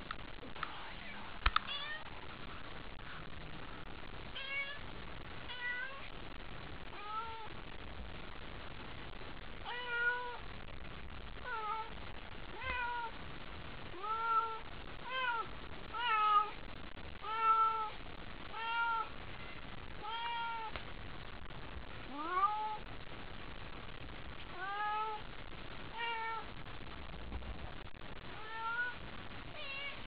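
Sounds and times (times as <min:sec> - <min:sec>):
cat meowing: 0:09.6 - 0:10.4, 0:14.0 - 0:16.5, 0:17.2 - 0:17.9, 0:18.5 - 0:19.1, 0:20.0 - 0:20.7, 0:24.5 - 0:25.2, 0:25.9 - 0:26.4, 0:28.3 - 0:30.0.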